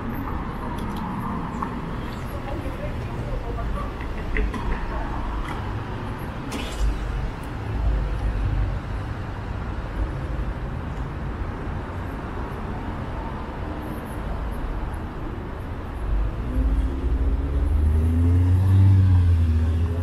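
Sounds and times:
cars and buses going by: 0.0 - 20.0.

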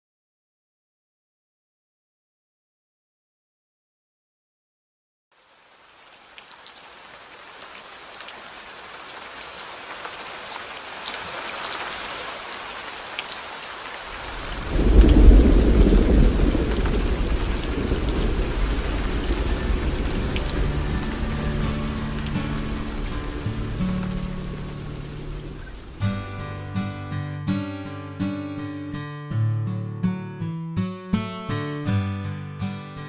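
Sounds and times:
steady rain: 5.3 - 27.2
raindrops tapping: 6.2 - 26.2
deep thunder rumble: 14.2 - 26.1.

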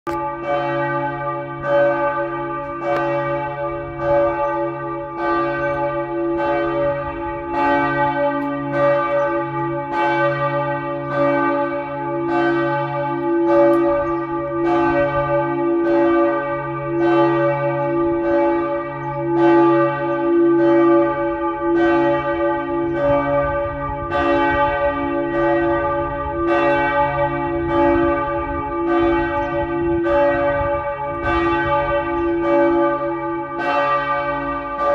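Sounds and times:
church bells pealing: 0.1 - 34.9.

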